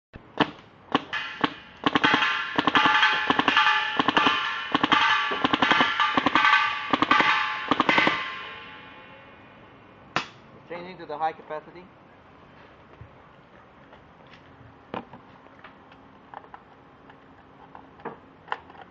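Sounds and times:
paintball marker firing: 0:00.4 - 0:08.2
steady ringing tone: 0:01.1 - 0:09.9.

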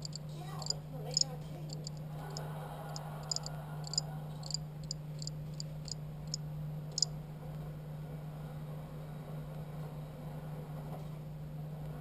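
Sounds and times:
crickets chirping: 0:00.0 - 0:02.4, 0:03.2 - 0:06.4
steady low hum: 0:00.0 - 0:09.8.

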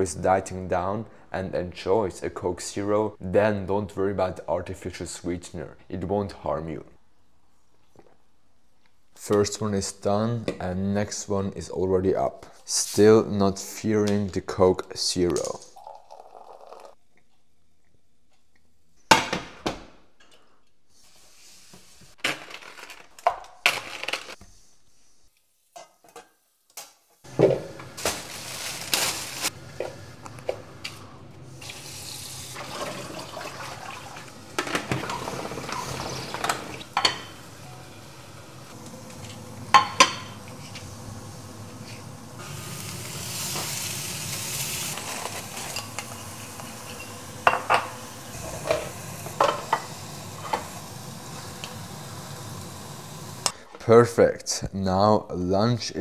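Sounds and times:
tap water running into steel sink: 0:31.6 - 0:37.1
chicken sizzling in frying pan: 0:34.2 - 0:53.5
dishes and utensils clattering: 0:34.6 - 0:37.4.

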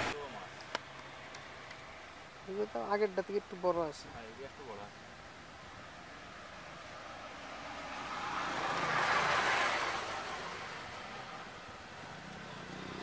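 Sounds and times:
vehicle passing by: 0:06.2 - 0:13.0.

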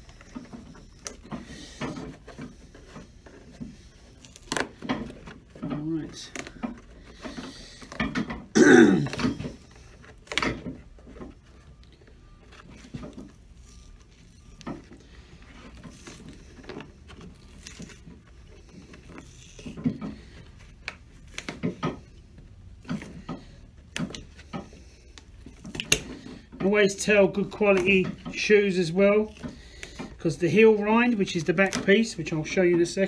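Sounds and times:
man clearing his throat: 0:08.5 - 0:09.2.

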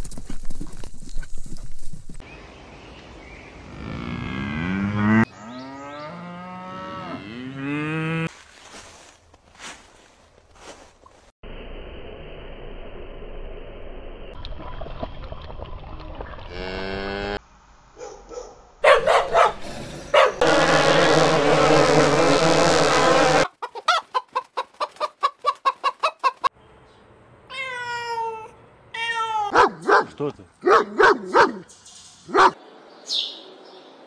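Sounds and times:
dog barking: 0:18.0 - 0:20.4, 0:29.5 - 0:31.6, 0:32.3 - 0:32.6.

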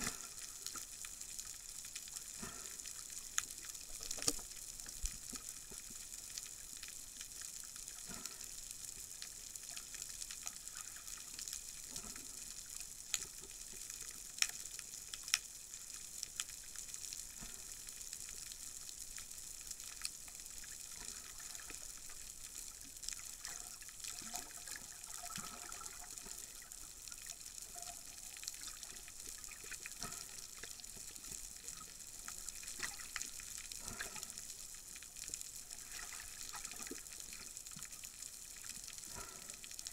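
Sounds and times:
underwater hiss: 0:00.0 - 0:06.2, 0:24.2 - 0:38.0, 0:38.6 - 0:39.9
sharp clicks and crackles: 0:00.0 - 0:08.4.

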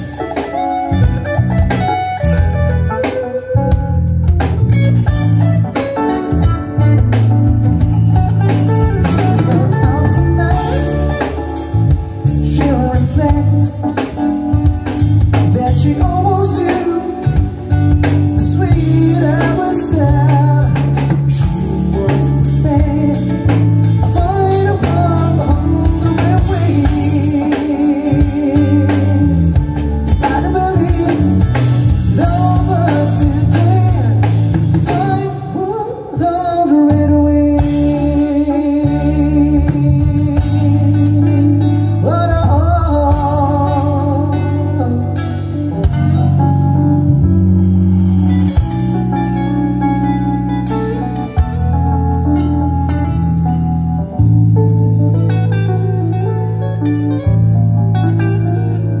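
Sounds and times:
drum kit: 0:00.0 - 0:59.0
electric guitar: 0:00.0 - 0:59.0
man singing: 0:09.0 - 0:46.4.

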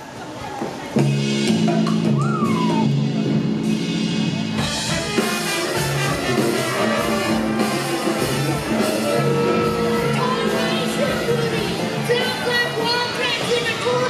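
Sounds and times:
drums: 0:00.0 - 0:14.0
strings: 0:01.0 - 0:14.0
brass: 0:03.6 - 0:12.8.

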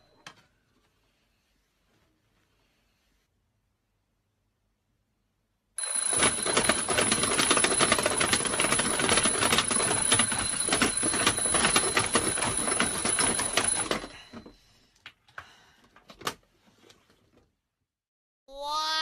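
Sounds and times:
alarm clock bells ringing: 0:05.8 - 0:14.6.

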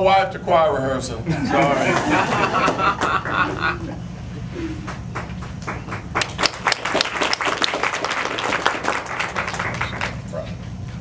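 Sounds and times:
audience applauding: 0:01.8 - 0:03.6, 0:04.8 - 0:10.2.

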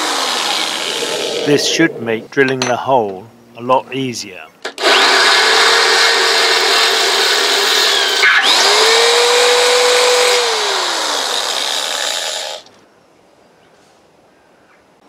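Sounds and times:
electric drill boring through steel: 0:00.0 - 0:01.5, 0:04.8 - 0:12.7.

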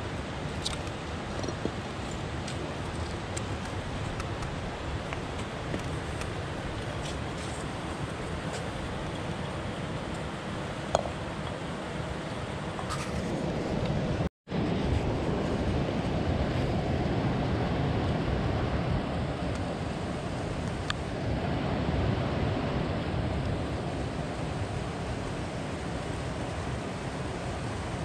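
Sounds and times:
river water rushing: 0:17.3 - 0:28.0.

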